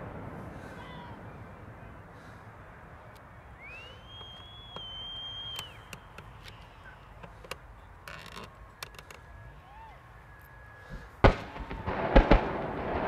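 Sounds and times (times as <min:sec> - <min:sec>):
fireworks popping: 0:00.0 - 0:09.3, 0:10.8 - 0:13.0
background hiss: 0:00.0 - 0:13.0
firework whistle: 0:03.4 - 0:07.0, 0:09.0 - 0:13.0.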